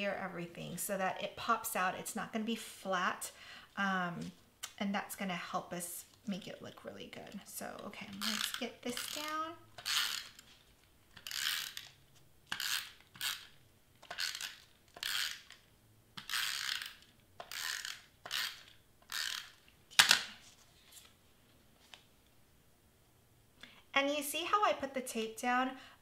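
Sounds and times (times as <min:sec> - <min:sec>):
tape runner rasping zips: 0:08.0 - 0:15.6, 0:16.2 - 0:19.6.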